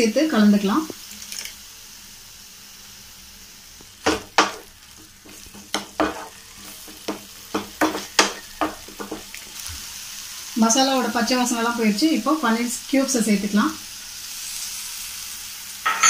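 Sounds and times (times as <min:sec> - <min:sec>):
sauce sizzling in a frying pan: 0:00.0 - 0:15.9
wooden spatula scraping a pan: 0:04.1 - 0:09.8.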